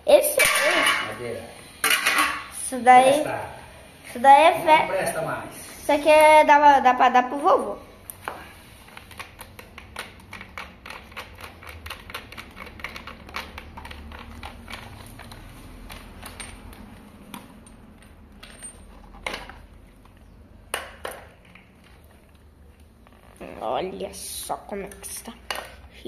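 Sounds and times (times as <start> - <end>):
plastic fan parts clicking: 8.9 - 17.6.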